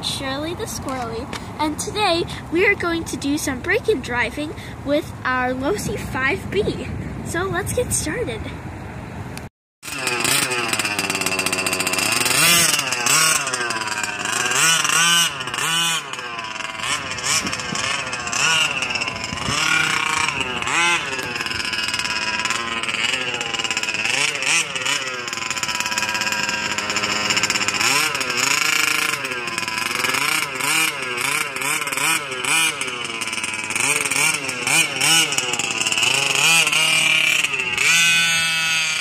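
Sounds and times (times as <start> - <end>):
two-stroke engine revving: 9.8 - 39.0.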